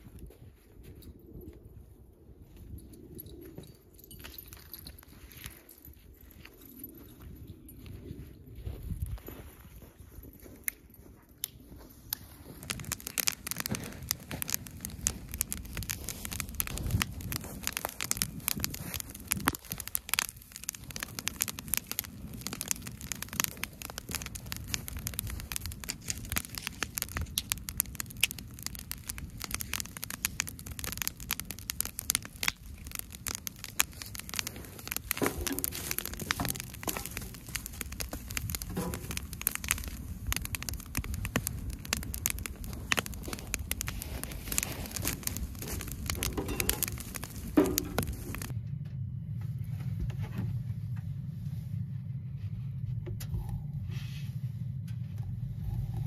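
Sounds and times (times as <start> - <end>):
wood fire crackling: 11.0 - 48.6.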